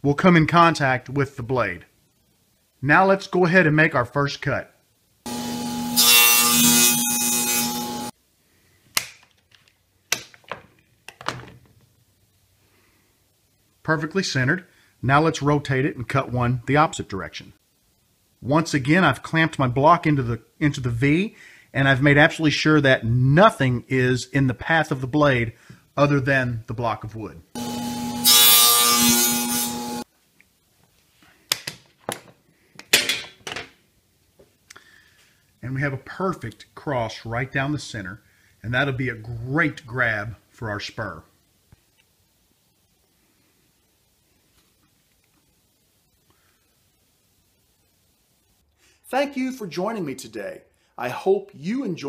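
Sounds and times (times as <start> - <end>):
table saw cutting wood: 5.3 - 8.1, 27.6 - 30.0
clamps clicking and knocking: 31.5 - 33.8.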